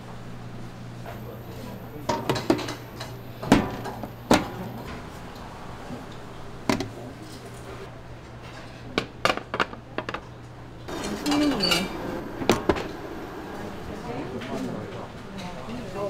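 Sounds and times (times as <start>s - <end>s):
dishes knocking and clattering: 2.0s - 5.0s, 8.5s - 10.3s, 10.9s - 13.0s.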